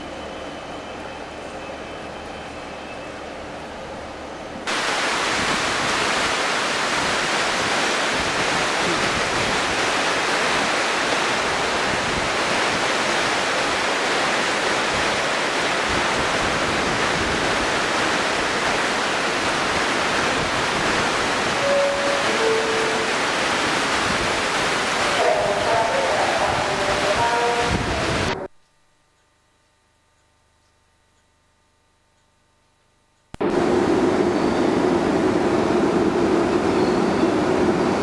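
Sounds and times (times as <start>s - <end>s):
steam hissing: 4.7s - 25.3s.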